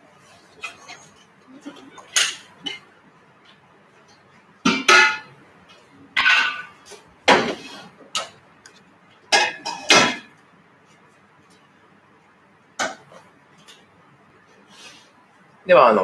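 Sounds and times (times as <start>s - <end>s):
metal pots clanking on steel: 6.2s - 8.4s, 9.3s - 10.3s.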